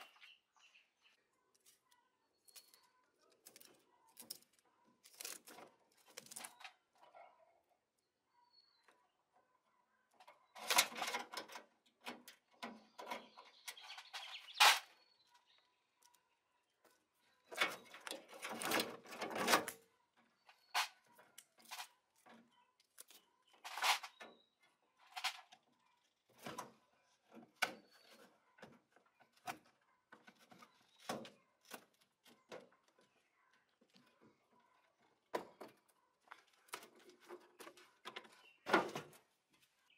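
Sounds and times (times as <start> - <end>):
hoses rustling and scraping: 23.0 - 24.3.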